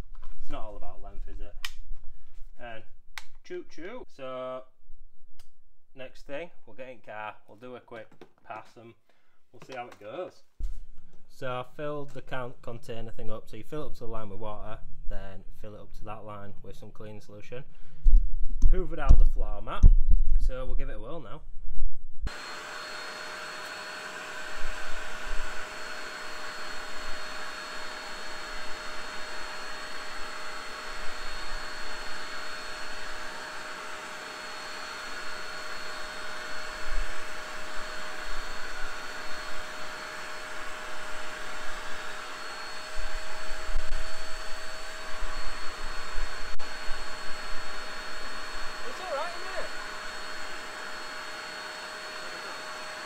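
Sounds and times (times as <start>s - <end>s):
spot cleaner suction motor: 22.3s - 53.0s.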